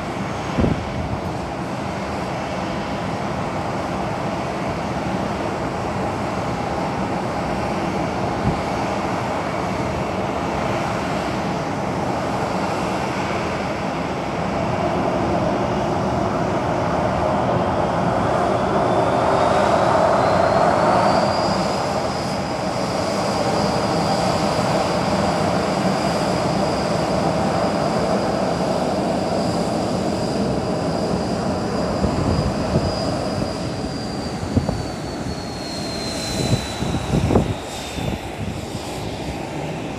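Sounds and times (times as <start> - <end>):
jet turbine whine: 0.0 - 39.9
steady rushing noise: 13.4 - 39.9.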